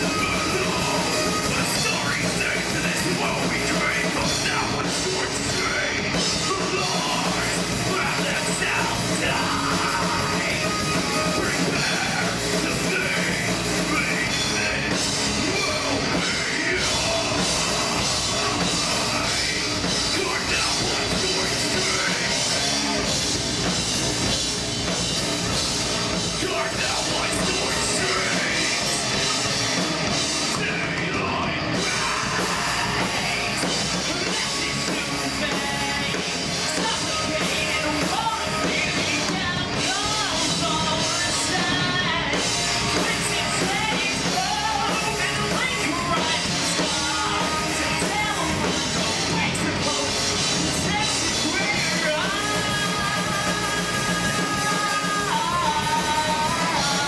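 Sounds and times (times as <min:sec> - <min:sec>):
person singing and shouting: 0:00.0 - 0:23.2, 0:26.1 - 0:57.0
bass guitar: 0:00.0 - 0:57.0
distorted electric guitars: 0:00.0 - 0:57.0
drum kit: 0:00.0 - 0:57.0.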